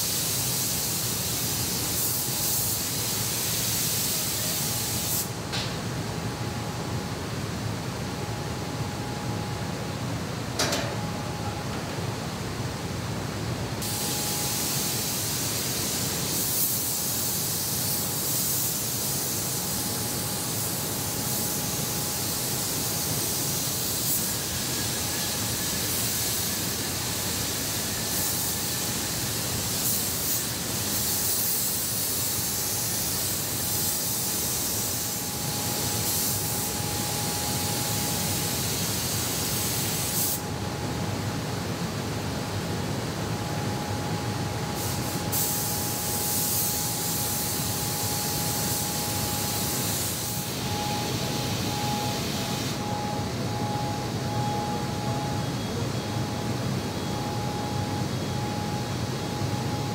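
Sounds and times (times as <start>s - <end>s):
spray gun hissing: 0.0s - 5.4s, 13.8s - 40.5s, 44.7s - 53.4s
low factory hum: 0.0s - 59.9s.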